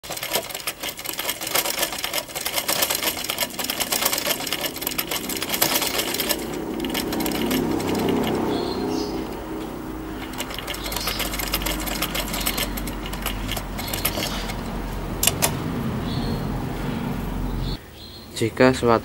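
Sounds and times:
sewing machine stitching: 0.0 - 9.3, 10.2 - 15.6.

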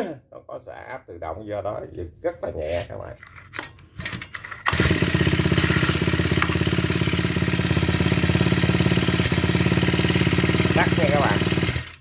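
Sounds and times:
recoil cord pull: 3.2 - 6.6
small engine idling: 4.1 - 12.0.

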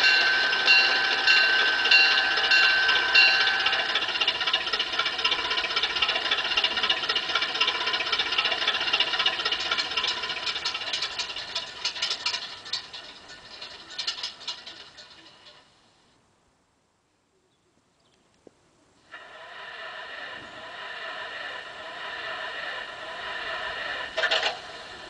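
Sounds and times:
pulsing high tone: 0.0 - 6.2
rattle: 0.0 - 16.0, 19.1 - 25.0
model locomotive engine sound: 0.0 - 16.1, 19.0 - 25.0.

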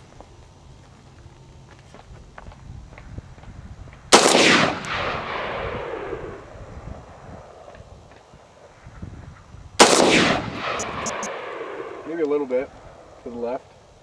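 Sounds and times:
rifle shot with echo: 4.1 - 6.4, 9.8 - 12.1.

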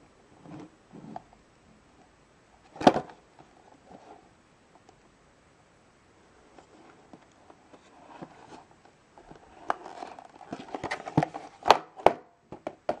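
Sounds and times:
cardboard boxes rustling: 7.7 - 11.8.

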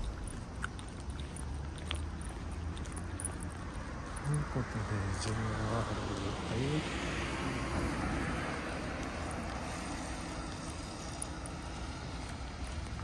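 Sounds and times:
car driving past: 3.9 - 13.0.

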